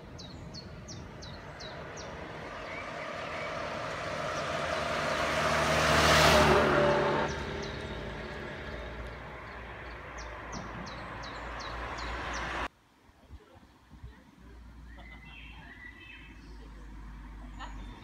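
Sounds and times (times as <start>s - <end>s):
birds chirping: 0.0s - 12.7s, 14.8s - 18.0s
car driving past: 0.8s - 12.7s.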